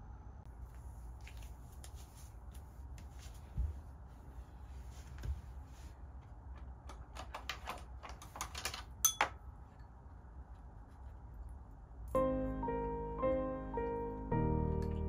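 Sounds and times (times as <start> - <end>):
bright ringing clink: 9.0 - 9.3.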